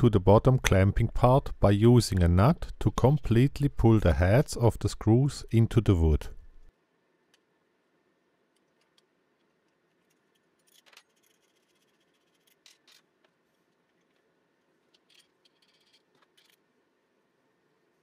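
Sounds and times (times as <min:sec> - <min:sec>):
screw and nut clicking metallic: 0:14.8 - 0:16.6.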